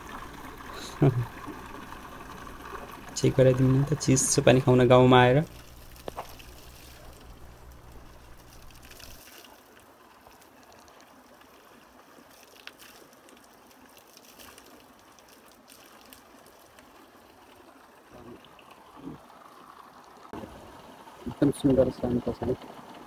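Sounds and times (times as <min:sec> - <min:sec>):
water splashing from a tap: 0:00.0 - 0:11.1, 0:12.1 - 0:17.0.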